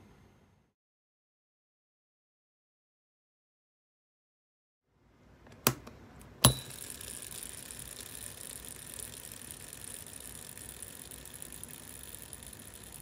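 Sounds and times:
fishing reel clicks: 6.6 - 13.0
reel spool whirring: 6.6 - 13.0.

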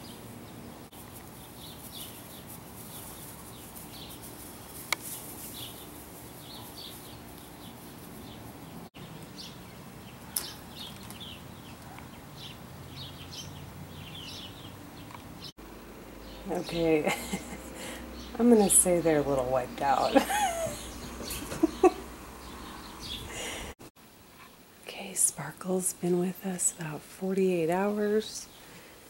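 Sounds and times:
small birds chirping: 0.0 - 15.6, 16.2 - 23.8
steady outdoor hum: 0.0 - 29.0.

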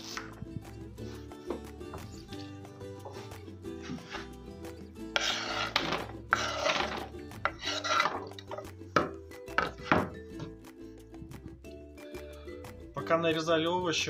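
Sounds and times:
knife scraping cutting board: 3.0 - 4.3, 5.1 - 8.7.

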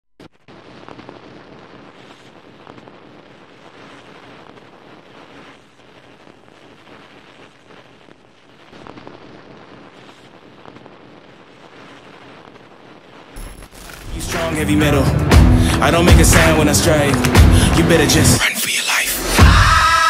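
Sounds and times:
faint crackles: 0.2 - 19.1
dense rushing noise: 13.2 - 20.0.

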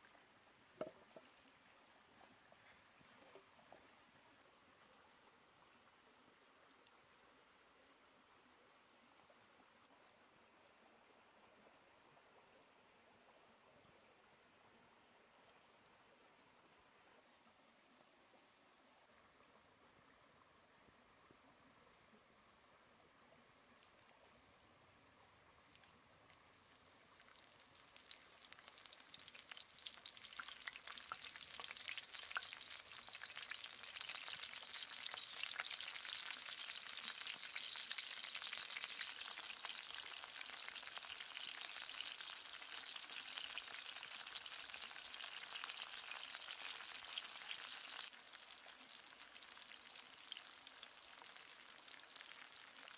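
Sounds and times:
vegetables sizzling in hot oil: 26.5 - 52.9.

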